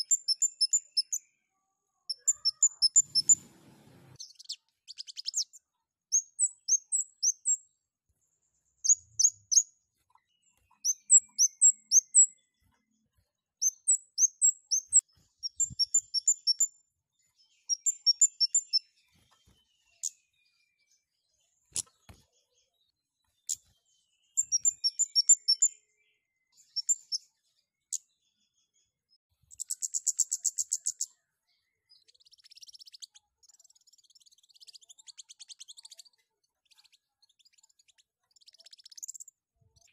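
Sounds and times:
bird high thin chirps: 0.0 - 1.3, 2.1 - 7.6, 10.3 - 12.5, 13.6 - 16.7, 17.5 - 20.2, 24.3 - 25.8, 26.6 - 27.2, 29.5 - 31.1, 31.9 - 39.9.

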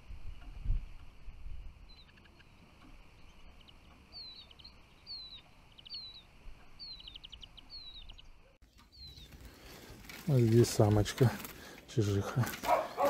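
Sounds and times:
bird ticking: 1.8 - 10.2.

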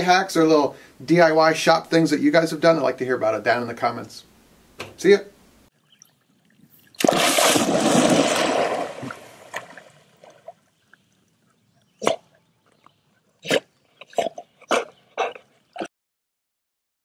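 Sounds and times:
dog barking: 14.7 - 15.4.

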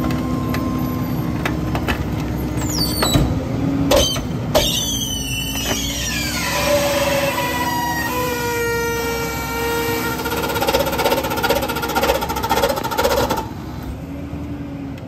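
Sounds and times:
hydraulic whine: 2.6 - 14.1
garbage truck engine running: 9.5 - 14.6.

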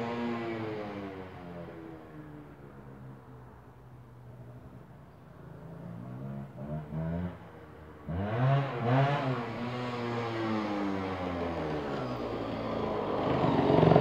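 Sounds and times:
motorcycle engine revving: 6.2 - 12.4, 13.0 - 14.0.

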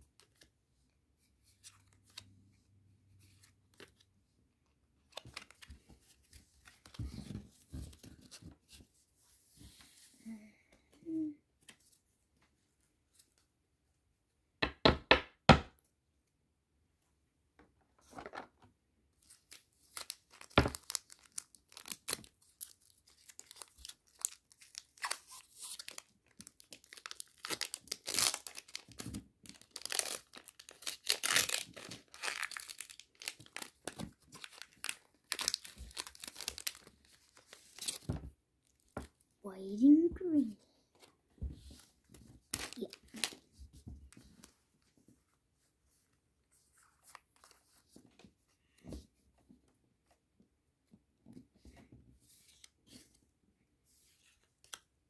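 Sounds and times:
foil wrapper crinkling and tearing: 19.3 - 38.0, 42.6 - 43.4.

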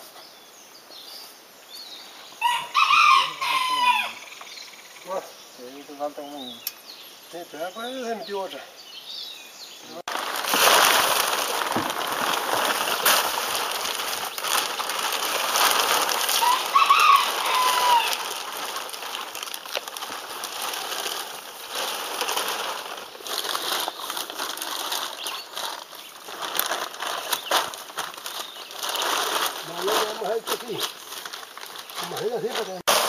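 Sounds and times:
plastic sheeting rustling: 9.9 - 33.0.

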